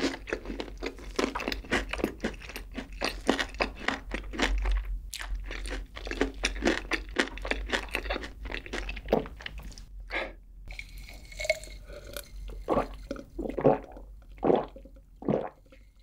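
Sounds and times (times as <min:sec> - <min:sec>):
person chewing food: 0:00.0 - 0:16.0
gulps of a drink: 0:11.3 - 0:15.8.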